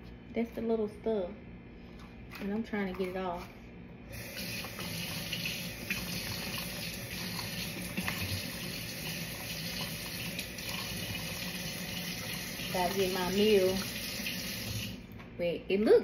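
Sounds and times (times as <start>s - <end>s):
faucet running into sink: 4.2s - 15.0s.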